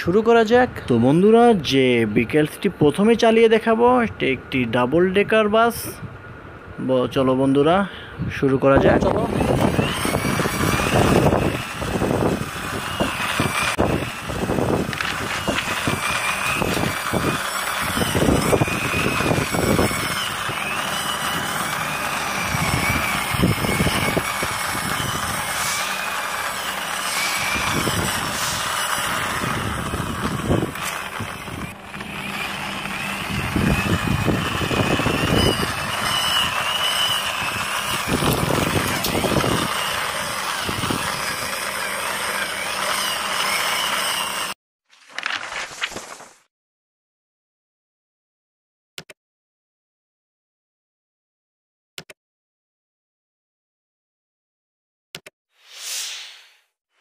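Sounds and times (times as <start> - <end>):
plastic toy wheels rolling on concrete: 9.1 - 44.6.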